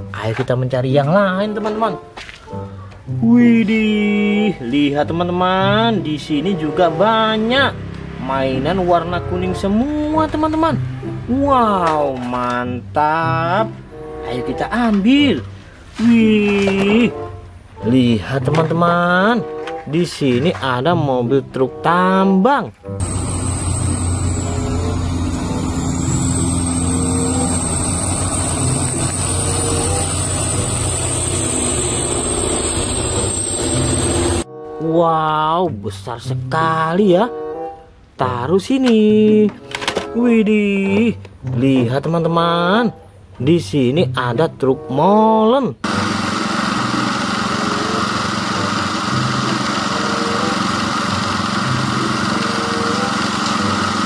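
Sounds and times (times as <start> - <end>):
haul truck diesel engine drone: 23.0 - 34.4, 45.8 - 54.0
thin high whine: 23.0 - 34.4.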